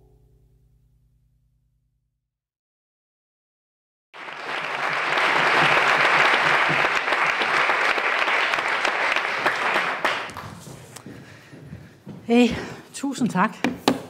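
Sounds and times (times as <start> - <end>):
audience applauding: 4.2 - 11.0.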